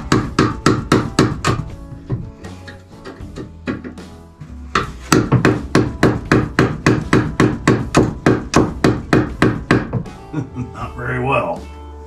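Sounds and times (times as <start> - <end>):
hammer hitting nails into wood: 0.0 - 2.2, 3.0 - 4.0, 4.7 - 10.1.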